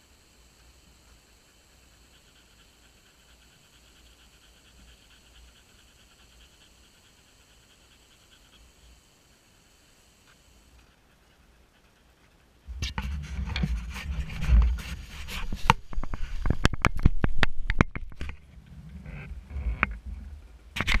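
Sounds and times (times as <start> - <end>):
sharp clicks and knocks: 12.7 - 18.4, 20.8 - 21.0
camera handling rubbing: 12.8 - 18.4.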